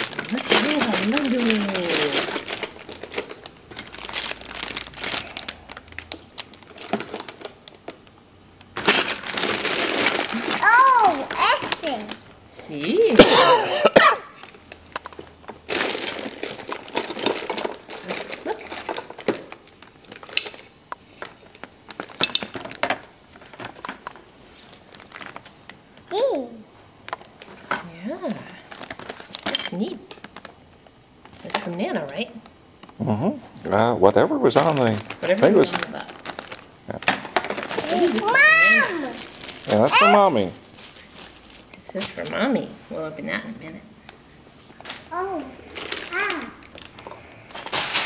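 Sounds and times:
plastic bag crinkling: 0.0s - 8.1s, 8.7s - 12.4s, 14.4s - 25.6s, 28.6s - 30.6s, 31.2s - 31.8s, 34.5s - 42.6s, 44.7s - 48.0s.

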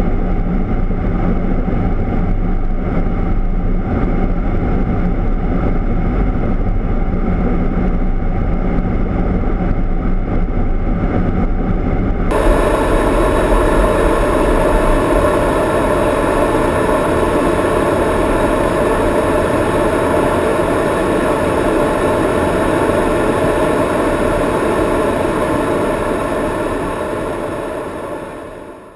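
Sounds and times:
airflow and jet engine noise: 0.0s - 28.9s
faint steady tones: 12.3s - 28.9s.

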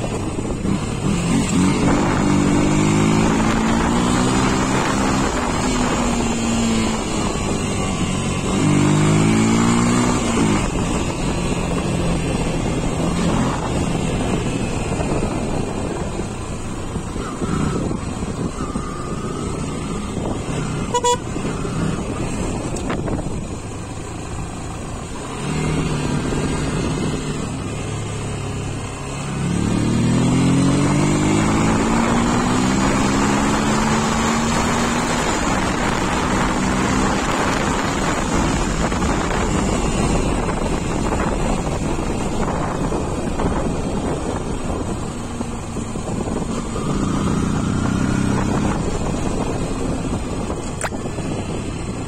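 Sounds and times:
motorcycle engine running: 0.0s - 52.0s
wind rushing over microphone: 0.0s - 52.0s
short horn beep: 20.8s - 21.7s.

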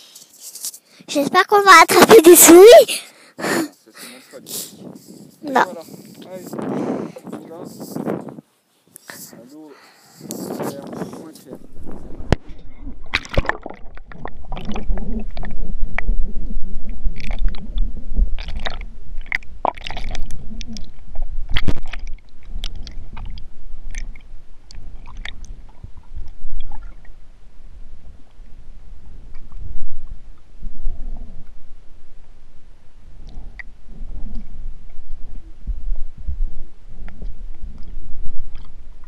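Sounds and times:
low rumble: 11.5s - 39.0s.

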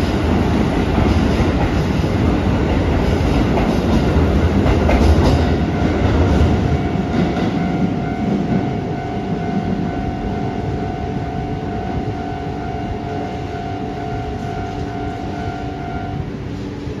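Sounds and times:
electric train rumbling: 0.0s - 17.0s
steady high tone: 5.5s - 16.6s.

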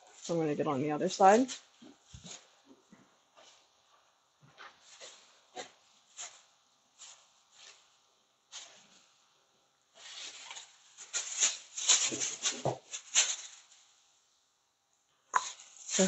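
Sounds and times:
plastic bag crinkling: 10.0s - 13.9s.

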